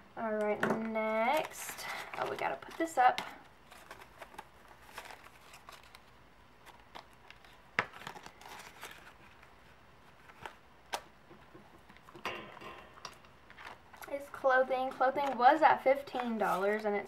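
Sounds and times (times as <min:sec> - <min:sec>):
paper bills rustling: 0:03.7 - 0:10.6.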